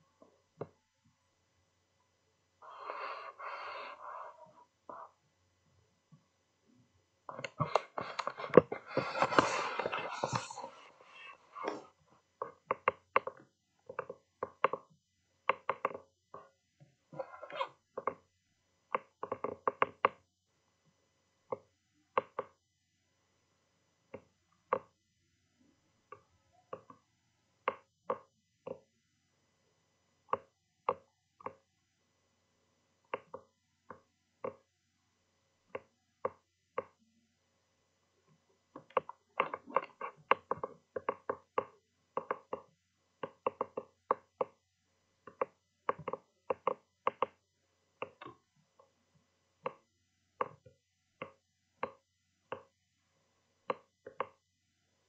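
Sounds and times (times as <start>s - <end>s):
sharp knocks and taps: 7.3s - 10.8s, 38.8s - 44.6s, 45.2s - 47.4s.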